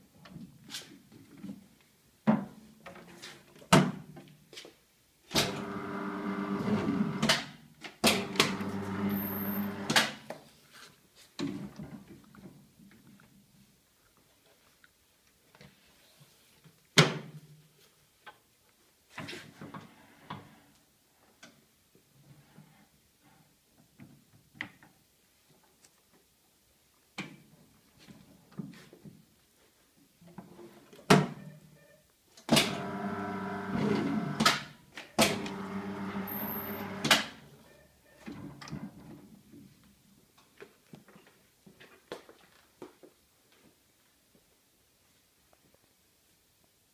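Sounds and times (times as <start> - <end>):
paper guillotine motor humming: 32.8 - 34.4, 35.3 - 37.1.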